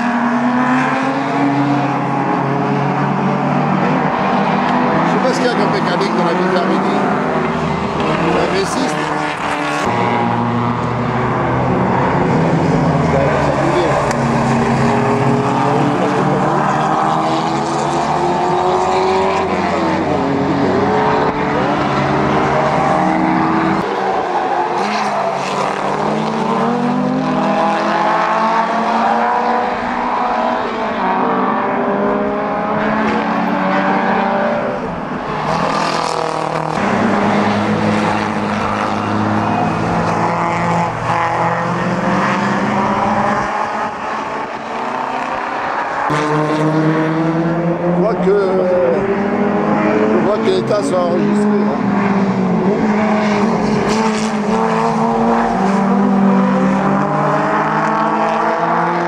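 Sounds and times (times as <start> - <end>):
racing car engines passing: 0.0 - 59.0.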